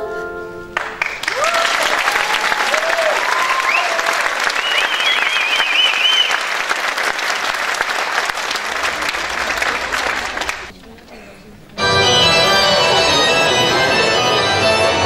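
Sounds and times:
audience applauding: 0:00.8 - 0:10.7
high whoops: 0:01.2 - 0:06.4.

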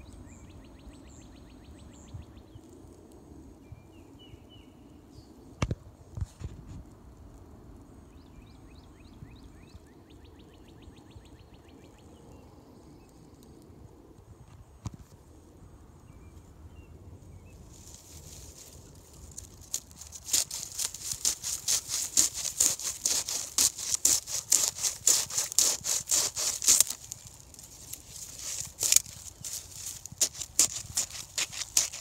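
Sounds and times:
rhythmic scratchy rubbing: 0:20.4 - 0:32.0.

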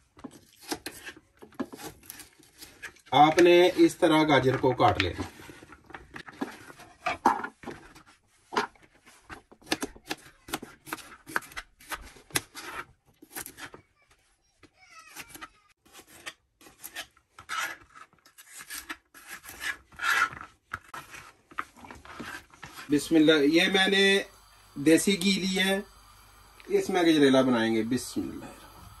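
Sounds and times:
knife cutting carrots on board: 0:00.2 - 0:03.9, 0:09.5 - 0:13.8, 0:15.1 - 0:17.8.

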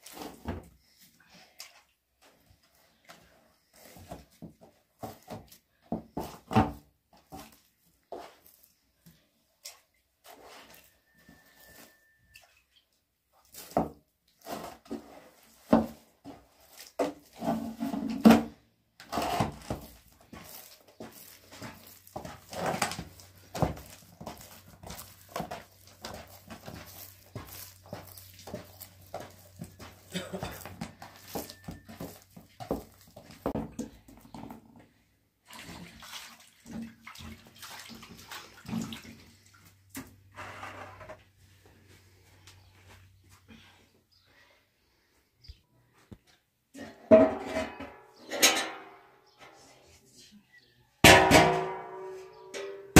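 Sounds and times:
dough squelching and slapping: 0:19.0 - 0:34.0, 0:35.4 - 0:39.4
hands splashing in water basin: 0:35.5 - 0:39.6
dough thumps in metal basin: 0:51.0 - 0:52.9.

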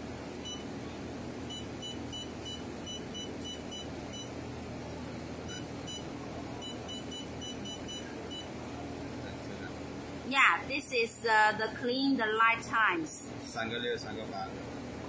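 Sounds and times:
steady low hum: 0:00.0 - 0:15.0
touchscreen keypad beeps: 0:01.5 - 0:04.3, 0:05.5 - 0:08.5.

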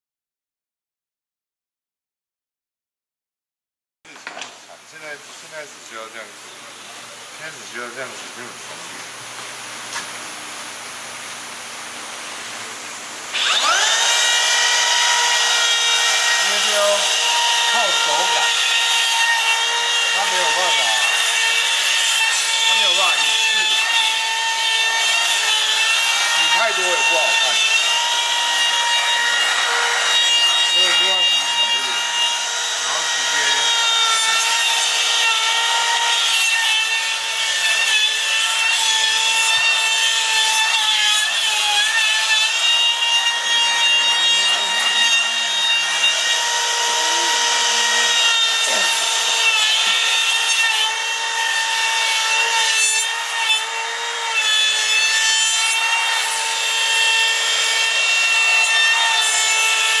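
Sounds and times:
router whining cutting wood: 0:12.7 - 1:00.0.

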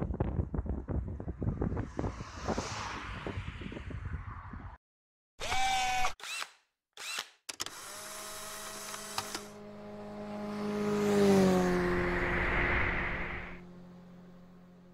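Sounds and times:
whoosh: 0:01.2 - 0:04.8, 0:11.9 - 0:13.6
engine-like hum: 0:08.3 - 0:14.9.

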